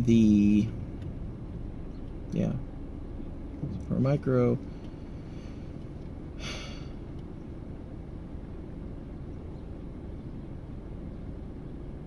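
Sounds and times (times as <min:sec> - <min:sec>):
low rumble inside car cabin: 0:00.0 - 0:12.0
breathy exhale: 0:05.0 - 0:05.8, 0:06.4 - 0:07.0.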